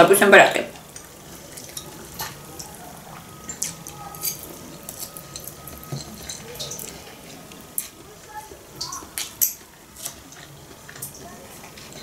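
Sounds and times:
fork clinking on ceramic: 0:03.4 - 0:07.2.

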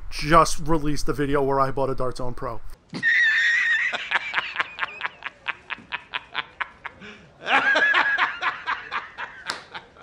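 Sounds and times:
man laughing hard: 0:02.9 - 0:10.0.

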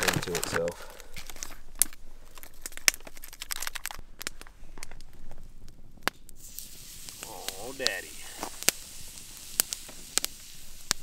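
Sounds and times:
steady hiss: 0:06.2 - 0:11.0.

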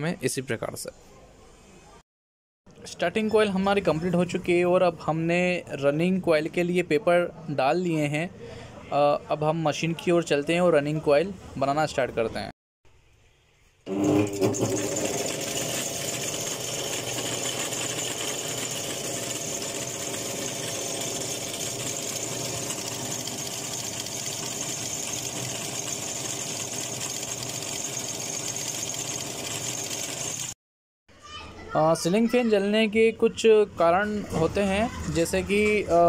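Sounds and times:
coil winding machine running: 0:13.9 - 0:30.6.

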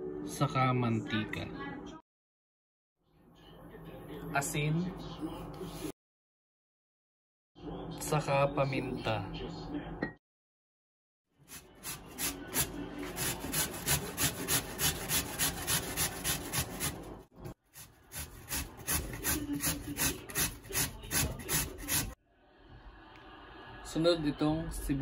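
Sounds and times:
potato scraping on grater: 0:11.5 - 0:22.2.

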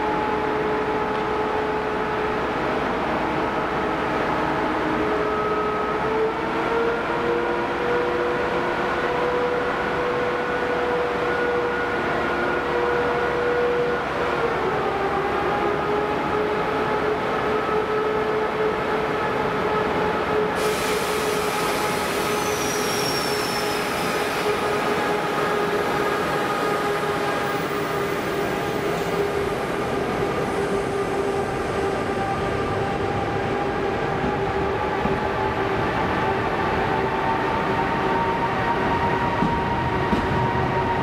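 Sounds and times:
hiss: 0:20.6 - 0:24.6
high wheel squeal: 0:21.4 - 0:24.7.

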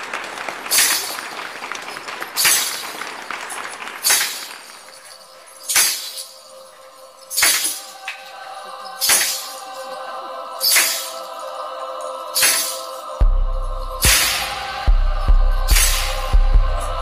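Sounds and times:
audience applause: 0:00.0 - 0:06.0
stage show music crash hits: 0:14.0 - 0:16.9.

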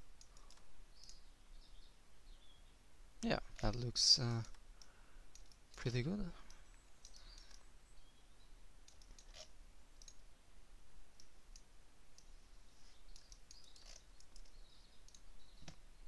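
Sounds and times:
low steady hum: 0:00.0 - 0:16.0
computer mouse clicking: 0:00.2 - 0:01.2, 0:03.6 - 0:07.7, 0:08.8 - 0:10.2, 0:11.2 - 0:12.3, 0:13.1 - 0:15.8.

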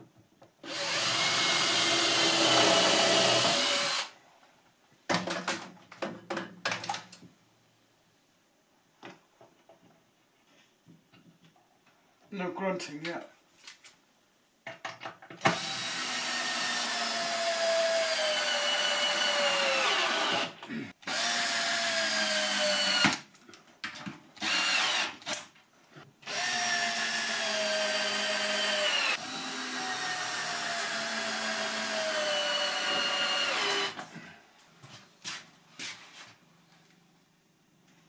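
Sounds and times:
power drill driving screws: 0:00.6 - 0:04.2, 0:15.4 - 0:23.2, 0:24.4 - 0:25.5, 0:26.2 - 0:34.0.

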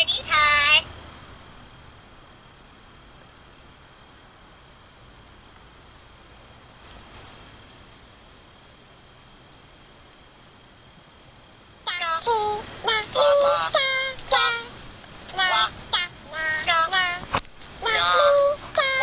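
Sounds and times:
insects chirping: 0:00.0 - 0:19.0
steady low hiss: 0:00.0 - 0:19.0.

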